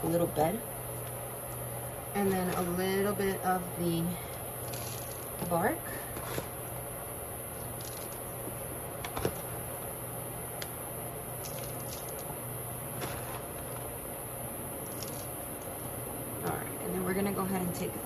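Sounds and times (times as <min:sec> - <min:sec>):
steady low hum: 0:00.0 - 0:18.0
bark chips rustling and clicking: 0:04.3 - 0:05.4, 0:07.5 - 0:08.4, 0:11.4 - 0:12.4, 0:14.8 - 0:15.8.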